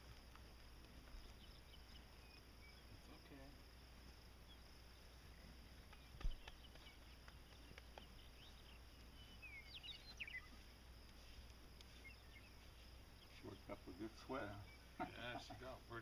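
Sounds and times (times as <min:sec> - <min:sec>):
high insect drone: 0:00.0 - 0:16.0
short bird chirps: 0:08.3 - 0:10.6.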